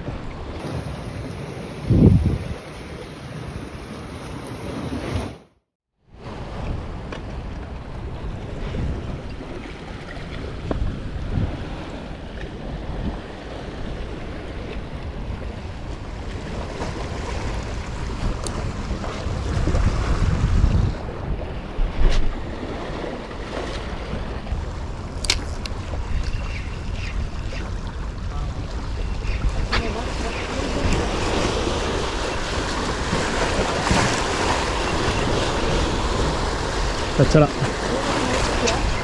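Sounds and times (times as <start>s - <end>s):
wind buffeting microphone: 0.0s - 2.8s, 6.2s - 39.0s
waves washing against rocks: 27.3s - 39.0s.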